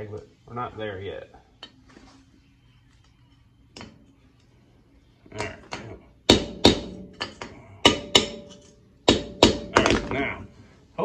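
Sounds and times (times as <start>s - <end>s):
hammer tapping metal: 5.3s - 10.1s.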